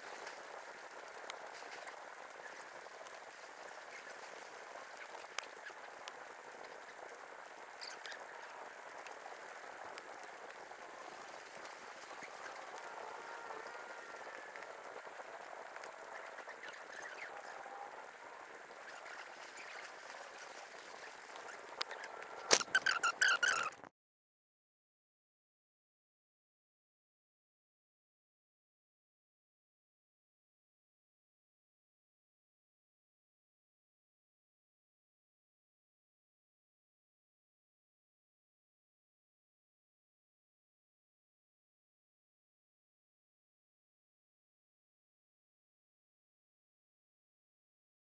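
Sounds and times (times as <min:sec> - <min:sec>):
forest ambience hiss: 0:00.0 - 0:23.7
faint wavering animal calls: 0:00.1 - 0:23.9.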